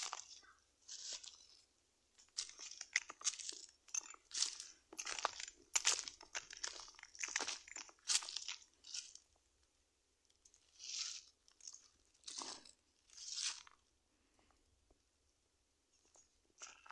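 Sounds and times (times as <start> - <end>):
footsteps crunching on dry leaves: 0.0 - 1.6, 2.3 - 9.2.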